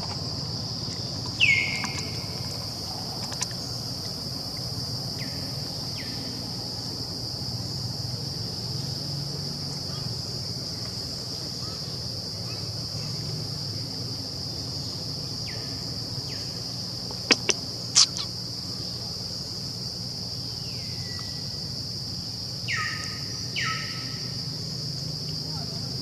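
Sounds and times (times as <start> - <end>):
high-pitched insect drone: 14.5 - 19.1
downward-sliding bird calls: 17.3 - 18.3
sharp clicks: 17.3 - 18.3.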